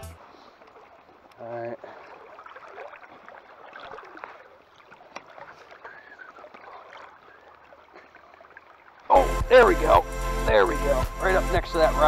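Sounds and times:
creek water over rocks: 0.0 - 12.0.

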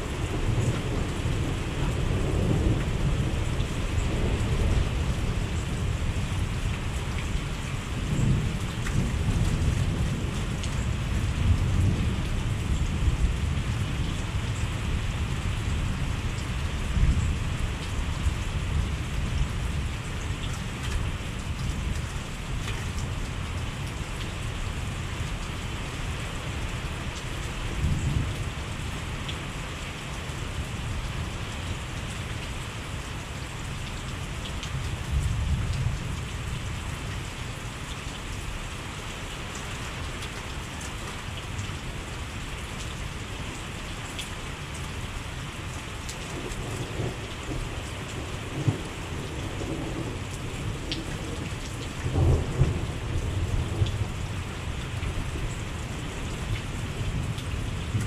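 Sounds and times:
heavy rain falling: 0.0 - 58.0
thunder rumbles: 8.0 - 14.0, 52.0 - 54.3.

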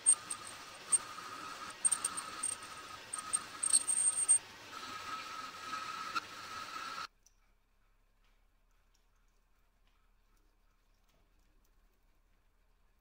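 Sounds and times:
light metallic clicks and clinks: 0.0 - 1.0, 1.6 - 4.4
faint steady high tone: 0.0 - 4.4.

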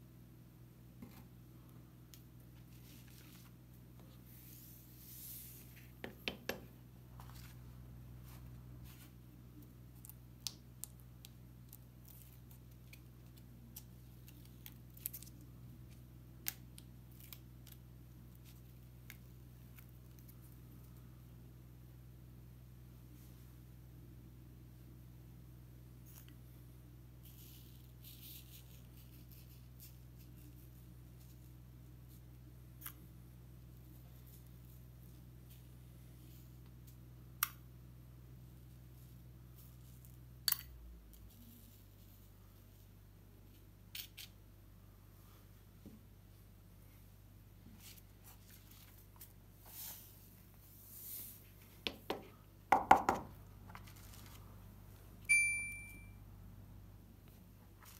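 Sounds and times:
steady low hum: 0.0 - 57.9
bright chime: 55.3 - 56.2.

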